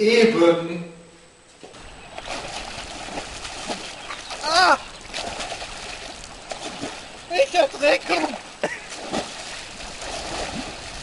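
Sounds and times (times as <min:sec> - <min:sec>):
water splashing: 0:01.6 - 0:11.0
man shouting: 0:04.4 - 0:04.8.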